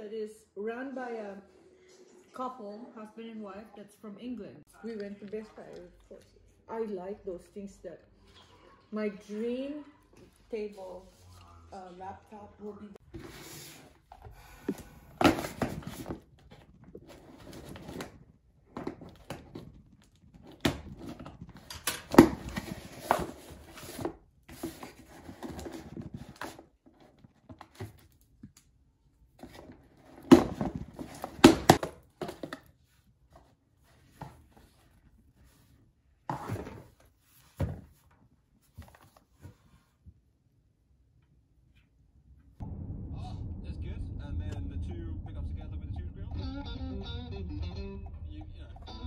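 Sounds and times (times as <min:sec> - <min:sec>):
cardboard rustling and tearing: 0:18.8 - 0:28.2.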